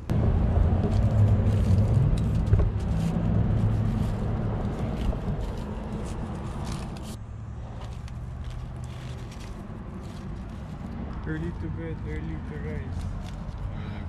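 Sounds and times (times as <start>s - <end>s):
car engine rumbling: 0.0s - 14.0s
paper wrappers rustling: 0.9s - 7.2s, 7.8s - 13.7s.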